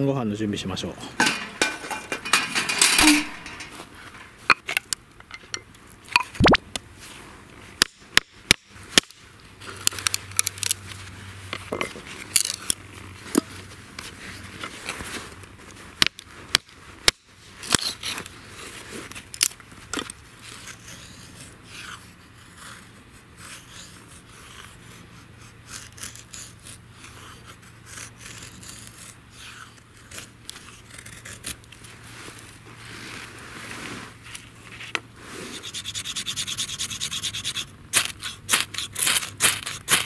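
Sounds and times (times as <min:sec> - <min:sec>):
knife scraping wooden stick: 0:20.0 - 0:31.6, 0:34.2 - 0:40.0.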